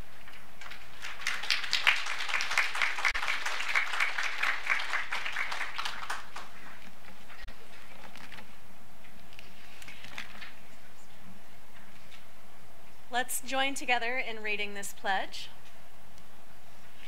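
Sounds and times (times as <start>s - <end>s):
crowd applauding: 0.9s - 6.9s.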